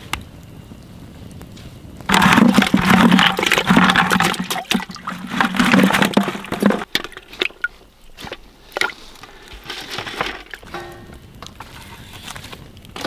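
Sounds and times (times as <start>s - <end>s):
water splashing and bubbling: 2.1s - 9.1s.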